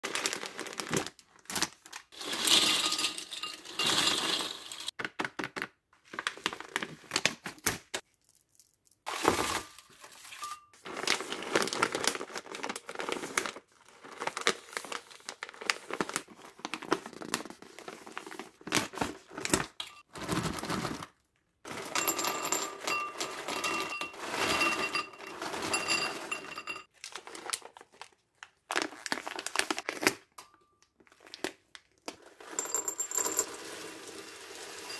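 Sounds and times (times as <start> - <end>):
plastic snack bags crinkling: 0.0 - 4.4, 8.0 - 19.4, 26.9 - 32.2.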